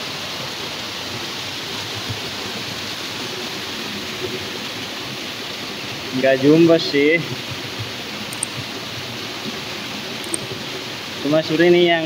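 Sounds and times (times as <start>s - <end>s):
stream water flowing: 0.0s - 12.0s.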